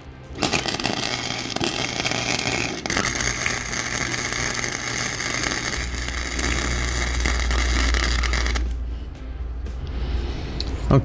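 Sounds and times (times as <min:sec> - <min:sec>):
low hum: 0:00.0 - 0:11.0
welder arc crackling and sputtering: 0:00.3 - 0:08.8.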